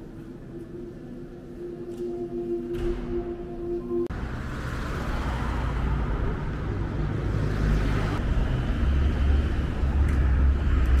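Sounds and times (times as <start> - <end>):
road noise: 0.0 - 11.0
vehicle engines running: 4.1 - 11.0.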